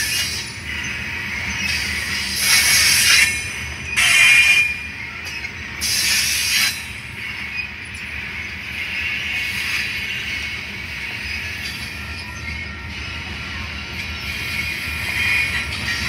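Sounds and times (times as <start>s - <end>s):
freight train rumbling past: 0.0s - 16.0s
train wheels squealing: 0.0s - 16.0s.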